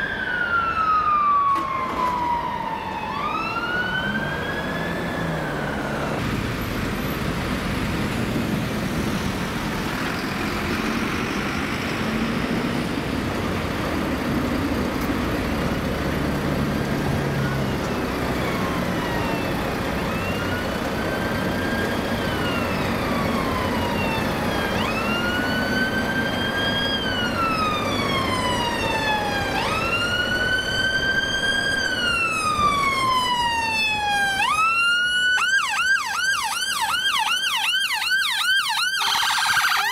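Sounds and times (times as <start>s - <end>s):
ambulance siren wailing: 0.0s - 6.2s, 15.9s - 39.9s
town traffic: 0.0s - 39.9s.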